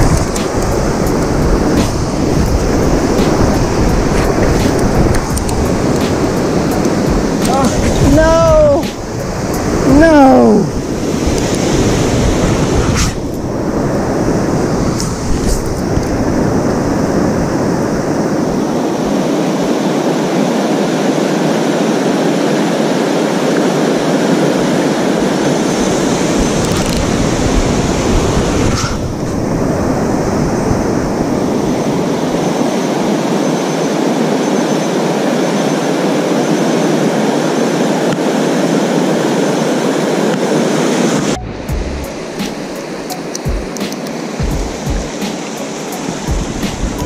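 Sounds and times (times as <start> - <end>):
river current rushing: 0.0 - 47.0.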